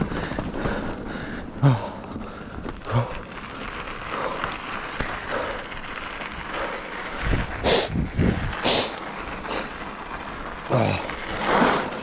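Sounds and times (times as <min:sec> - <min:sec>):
bike thumping over bumps: 0:00.0 - 0:12.0
bike tyres on gravel trail: 0:00.0 - 0:12.0
wind on microphone: 0:07.1 - 0:08.9.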